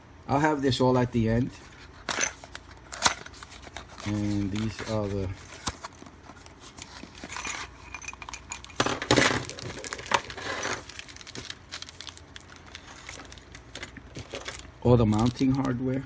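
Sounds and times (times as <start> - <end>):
plastic crinkling: 3.3 - 7.4, 9.4 - 15.8
metal screws rattling in bags: 7.2 - 10.9.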